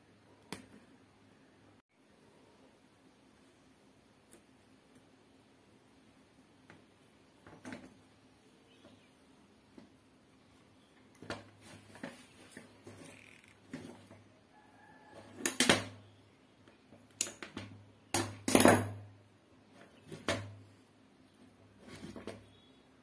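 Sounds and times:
wire and tools clicking: 0:17.0 - 0:18.3.

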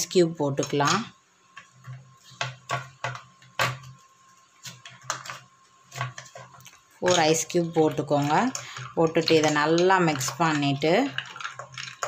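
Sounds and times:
ice cubes clinking in a glass: 0:08.2 - 0:12.0.

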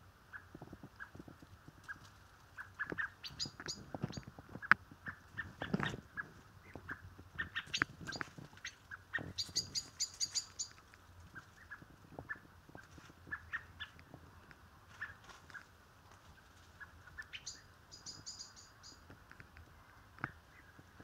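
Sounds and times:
blackbird chirps: 0:02.6 - 0:14.0, 0:15.0 - 0:15.7, 0:16.8 - 0:19.1
high bird chips: 0:06.9 - 0:11.8
rustle in leaf litter: 0:08.0 - 0:11.8.

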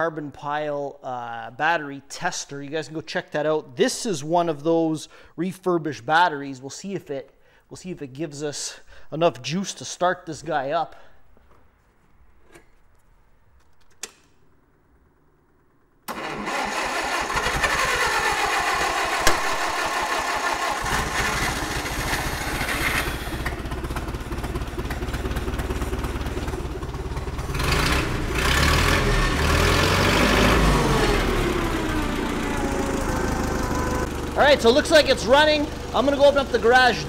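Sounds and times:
forklift engine cranking and running: 0:16.1 - 0:37.0.

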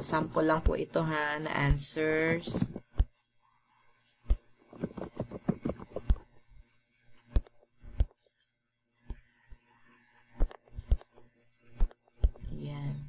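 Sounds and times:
keyboard keystrokes: 0:04.7 - 0:06.3.

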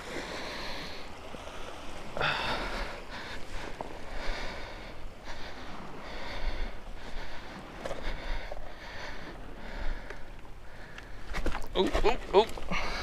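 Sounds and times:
man breathing hard: 0:02.1 - 0:11.4, 0:12.7 - 0:13.0.

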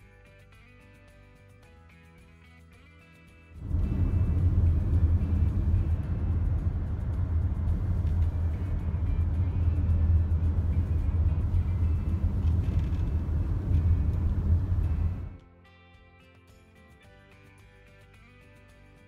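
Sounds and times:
faint music: 0:00.0 - 0:19.0
road and wind noise in car: 0:03.6 - 0:15.4.

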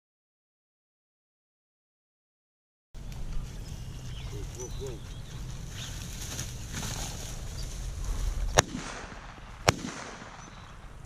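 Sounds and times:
wind on microphone: 0:03.1 - 0:09.6
shotgun shots: 0:08.5 - 0:11.0.

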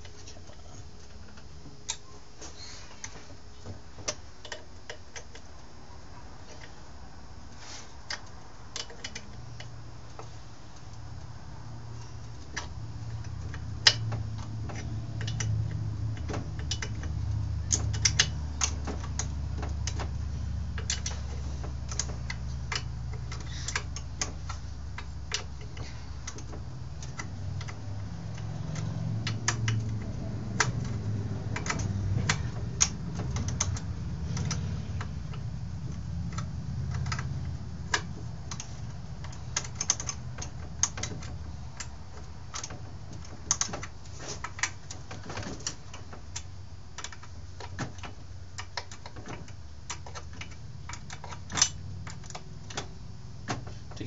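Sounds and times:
hand tools clicking and tapping: 0:02.9 - 0:06.8, 0:08.0 - 0:11.3, 0:11.9 - 0:54.0.

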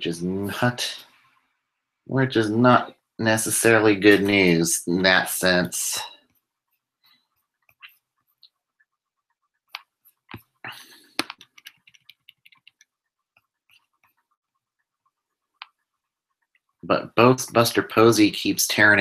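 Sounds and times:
faint clicks and taps: 0:06.3 - 0:16.8.

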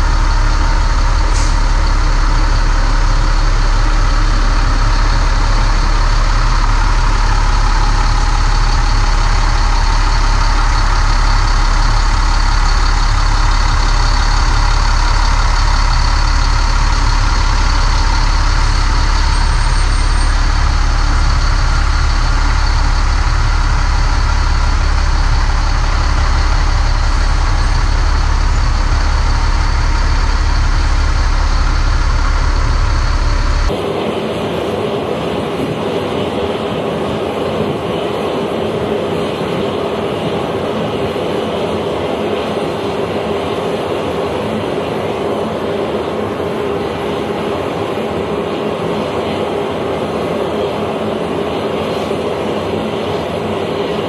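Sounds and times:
heavy truck driving down ramp: 0:00.0 - 0:36.4
loud aircraft engine and machinery noise: 0:00.0 - 0:54.0.

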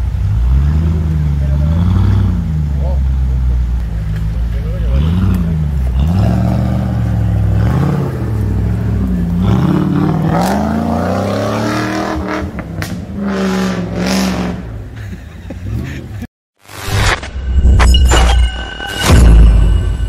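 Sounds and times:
engine revving: 0:00.2 - 0:03.0, 0:04.7 - 0:14.8.

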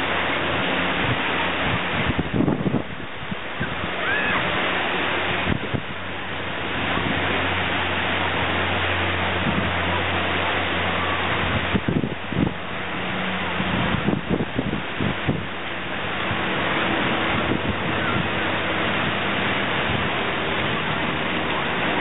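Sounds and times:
propeller plane droning: 0:00.0 - 0:22.0
wind on microphone: 0:00.0 - 0:22.0.

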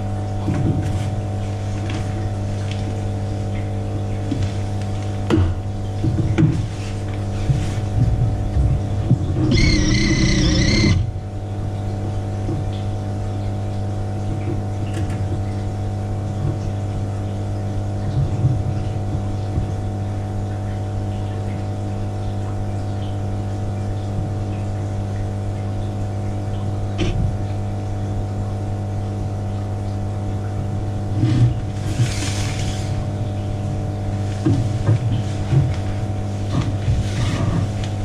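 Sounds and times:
aquarium pump hum: 0:00.0 - 0:38.0.

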